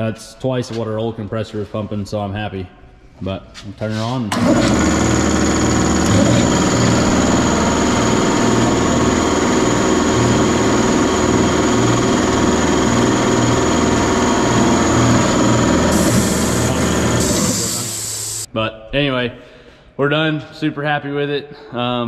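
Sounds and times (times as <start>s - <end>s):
air compressor running: 4.3s - 18.5s
steady high whine: 4.4s - 18.5s.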